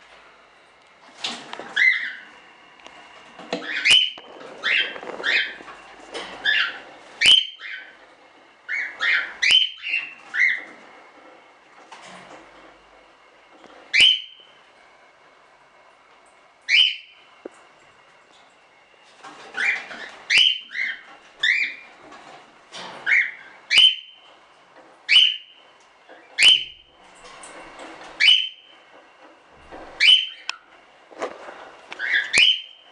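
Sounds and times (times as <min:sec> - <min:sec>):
cockatiel calling: 0:01.8 - 0:02.3, 0:03.6 - 0:05.6, 0:06.4 - 0:08.0, 0:08.7 - 0:10.7, 0:13.9 - 0:14.4, 0:16.7 - 0:17.2, 0:19.6 - 0:21.8, 0:23.0 - 0:24.2, 0:25.1 - 0:25.6, 0:28.2 - 0:28.7, 0:30.0 - 0:30.6, 0:32.0 - 0:32.8.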